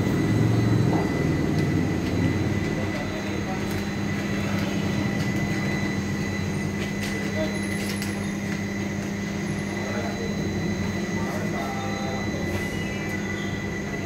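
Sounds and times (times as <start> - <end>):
high whine: 0.0 - 14.0
machine hum: 0.0 - 14.0.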